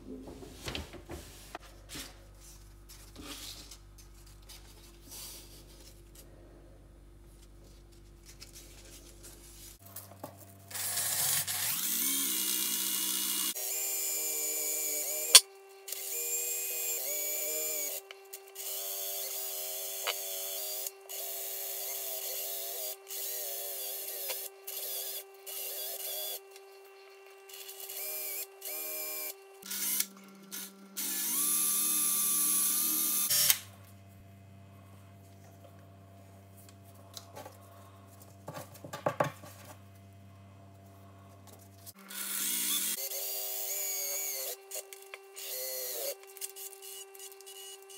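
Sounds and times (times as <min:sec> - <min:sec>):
cordless drill motor whine: 0:10.7 - 0:26.6, 0:27.5 - 0:33.6, 0:42.0 - 0:47.9.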